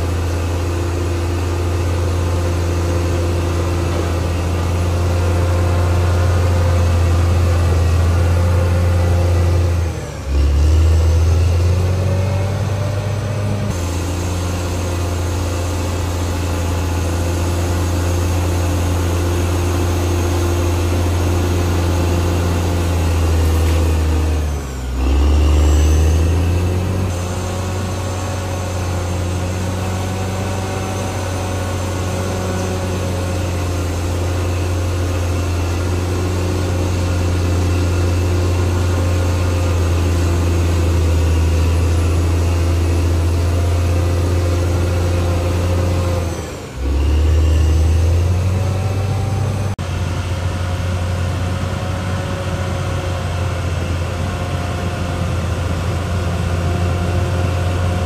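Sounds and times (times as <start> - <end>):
bulldozer diesel engine running: 0.0 - 58.0.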